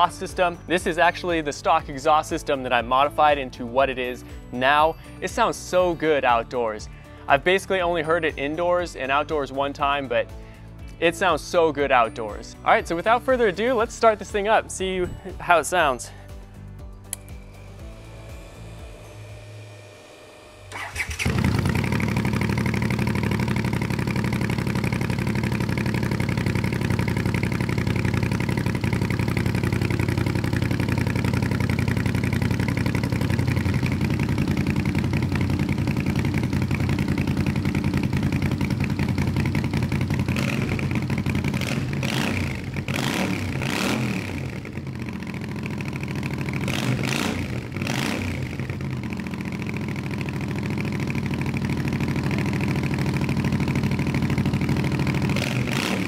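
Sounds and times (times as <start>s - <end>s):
motorcycle engine idling and revving: 17.1s - 56.0s.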